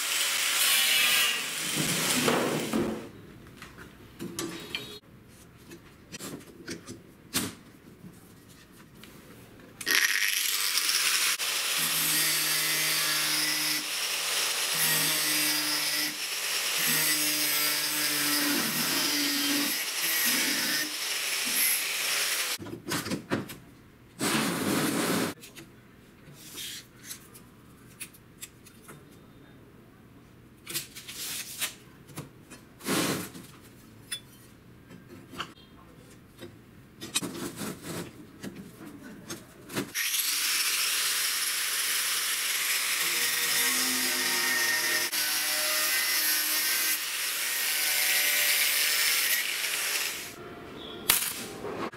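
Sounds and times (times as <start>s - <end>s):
angle grinder cutting steel: 0.0s - 1.8s, 9.9s - 22.6s, 40.0s - 50.4s.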